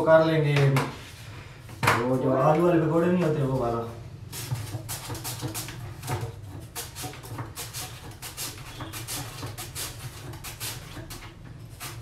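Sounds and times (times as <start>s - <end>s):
potato scraping across slicer: 3.0s - 12.0s.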